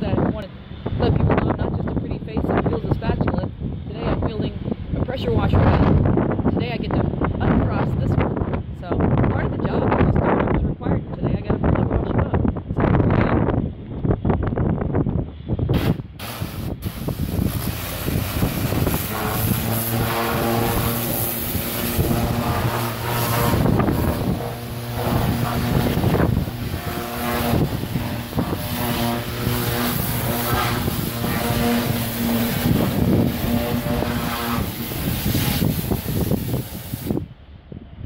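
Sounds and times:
steady engine hum: 0:00.0 - 0:09.8, 0:13.4 - 0:37.5
pressure washer spraying hull: 0:15.8 - 0:37.2.

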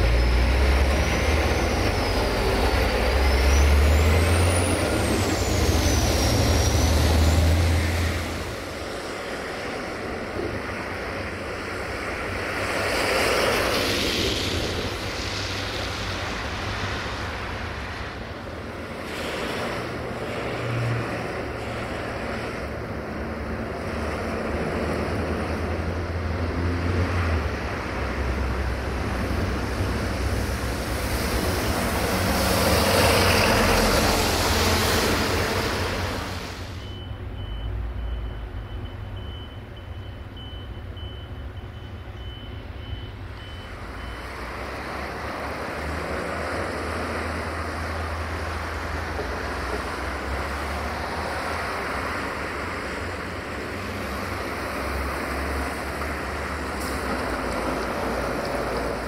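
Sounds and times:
diesel truck engines passing: 0:00.0 - 0:59.0
tyre hiss on road: 0:12.8 - 0:18.3, 0:18.9 - 0:20.7, 0:30.2 - 0:36.8
short high beeps: 0:36.8 - 0:44.2.

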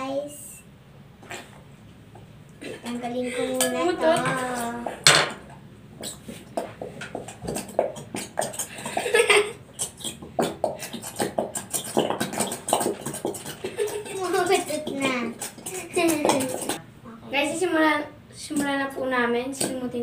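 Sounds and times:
glue bottles squelching and sputtering: 0:06.0 - 0:16.8.

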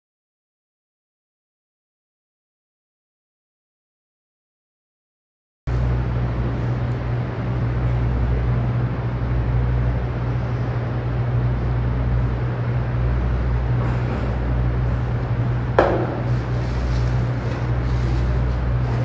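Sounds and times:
low hum: 0:05.7 - 0:19.0
sharp knock: 0:15.8 - 0:16.3.

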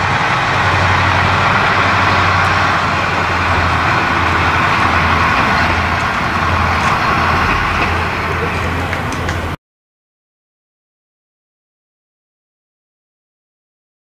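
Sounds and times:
diesel railcar engine droning: 0:00.0 - 0:09.6.

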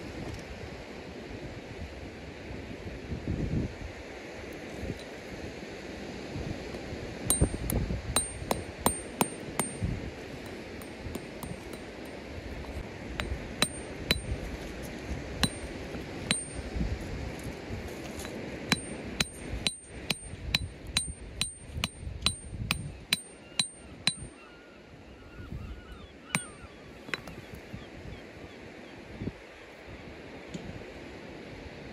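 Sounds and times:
pick hammer striking stone: 0:07.3 - 0:14.5, 0:15.4 - 0:16.7, 0:18.2 - 0:24.3, 0:26.4 - 0:27.4.

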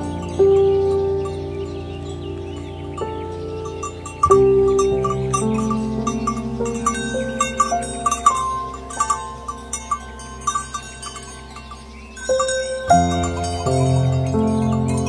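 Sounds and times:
slow instrumental melody: 0:00.0 - 0:15.0
light bell-like tapping: 0:03.7 - 0:15.0.

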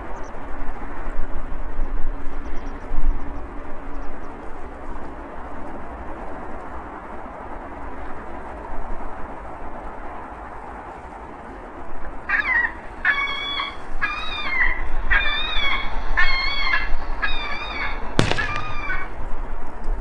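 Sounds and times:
bird calling: 0:12.3 - 0:19.2
sharp click: 0:18.2 - 0:19.0.

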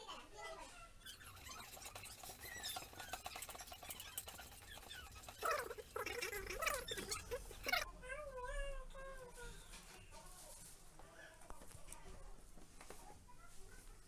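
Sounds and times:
pulp squelching on mesh: 0:01.0 - 0:07.9.

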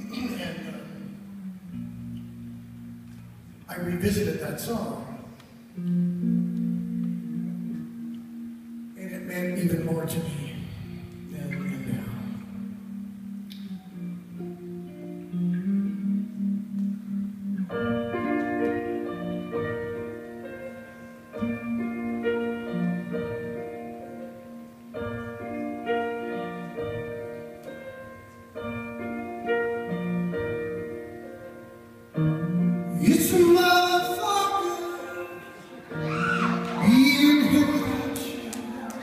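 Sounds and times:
live band instrumental phrase: 0:00.0 - 0:39.0
crowd cheering and whooping: 0:35.9 - 0:37.5, 0:38.2 - 0:39.0.

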